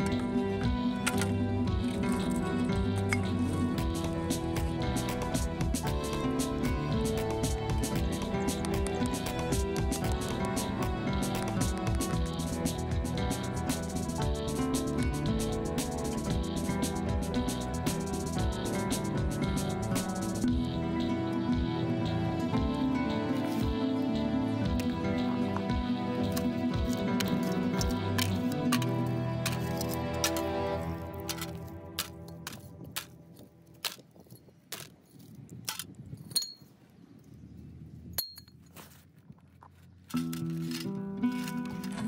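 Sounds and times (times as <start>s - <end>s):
small tools clicking and tapping: 31.2s - 36.6s
high metallic clink: 36.2s - 36.7s, 38.2s - 38.7s.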